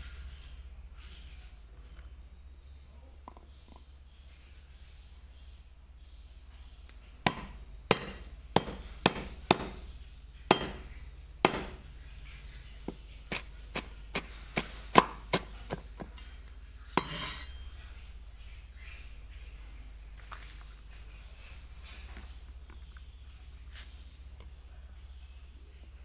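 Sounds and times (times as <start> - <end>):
cleaver chopping on wooden block: 7.2 - 9.9, 10.5 - 11.8, 12.9 - 16.2.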